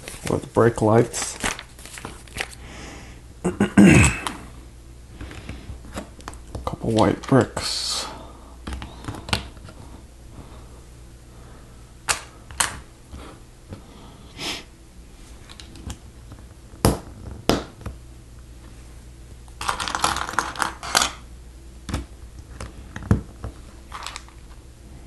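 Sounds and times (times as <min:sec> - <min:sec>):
plastic pieces rattling: 0:19.6 - 0:21.2, 0:23.9 - 0:24.4.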